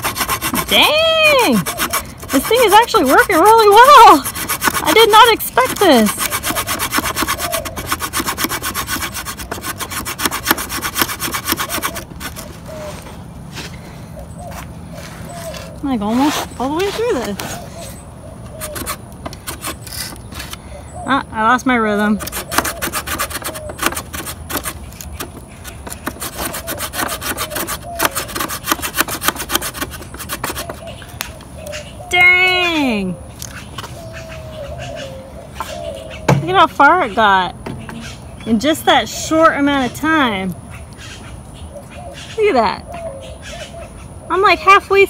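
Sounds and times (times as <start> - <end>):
small saw cutting wooden stick: 0.0 - 13.0, 15.4 - 17.9, 18.5 - 20.6, 22.2 - 30.9.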